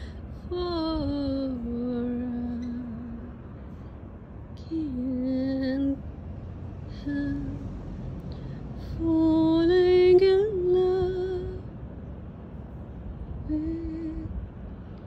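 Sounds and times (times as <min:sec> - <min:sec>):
woman singing slow melody: 0:00.0 - 0:03.8, 0:04.6 - 0:06.1, 0:06.8 - 0:11.8, 0:13.3 - 0:14.6.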